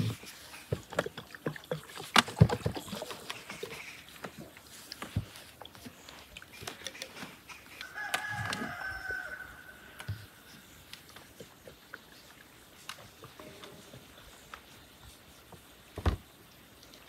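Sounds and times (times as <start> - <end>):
rooster crowing: 7.8 - 10.4.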